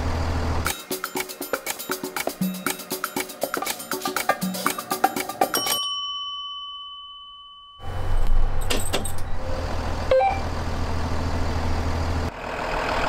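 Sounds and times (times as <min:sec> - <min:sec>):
bus engine hum: 0:00.0 - 0:00.7, 0:07.8 - 0:13.0
chime ringing: 0:04.3 - 0:08.2.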